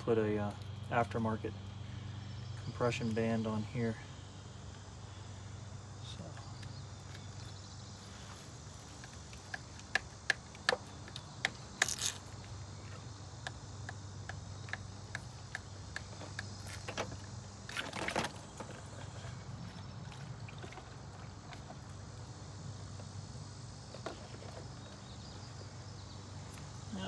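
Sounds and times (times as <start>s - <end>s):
rubber hose clicks and scrapes: 8.9s - 13.0s.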